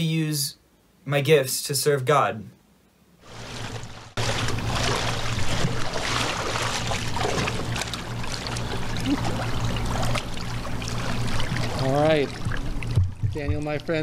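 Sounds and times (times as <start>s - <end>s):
steady low hum: 2.8s - 14.0s
water sloshing and splashing: 3.2s - 14.0s.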